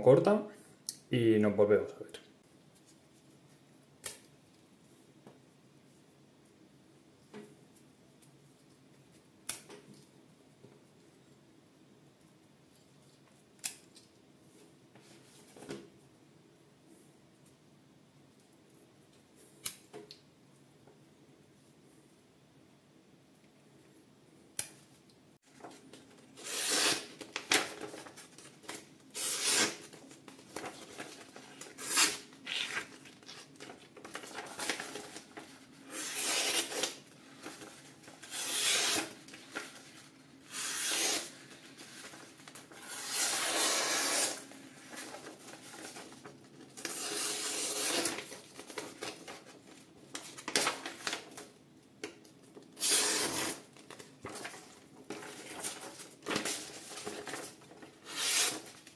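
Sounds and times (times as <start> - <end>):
knife blade slicing paper: 26.4 - 27.1, 29.2 - 29.8, 35.9 - 37.0, 38.3 - 39.2, 40.5 - 41.3, 42.8 - 44.4, 58.0 - 58.7.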